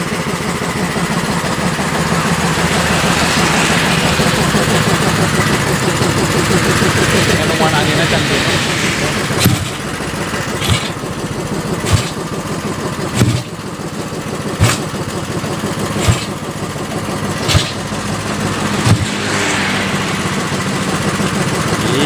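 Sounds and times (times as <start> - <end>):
kick-starter clacking: 0.0 - 22.0
motorcycle engine firing unevenly: 8.3 - 19.6.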